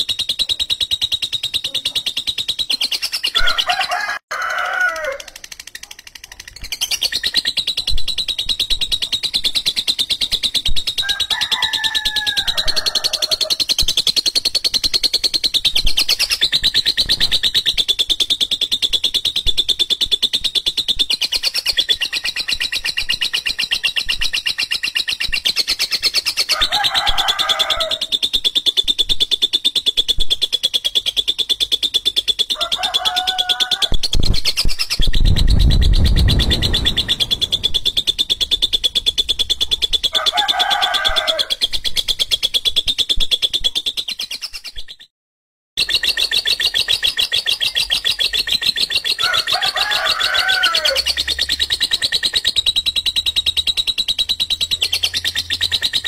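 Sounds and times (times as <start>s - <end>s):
lower chattering bird calls: 0.0s - 3.8s, 5.2s - 45.1s, 45.8s - 56.0s
bird chattering trill: 0.0s - 3.9s, 5.2s - 11.7s, 12.5s - 45.1s, 45.8s - 49.6s, 50.8s - 56.0s
low rumble: 35.1s - 40.1s.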